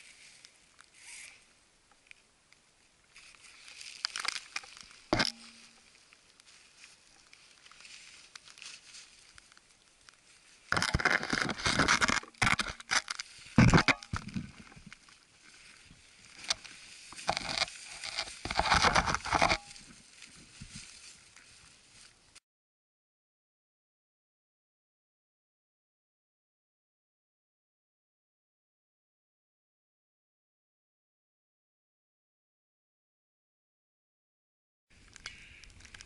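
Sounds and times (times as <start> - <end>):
branches and snow scraping: 0.0 - 1.5, 3.1 - 22.4.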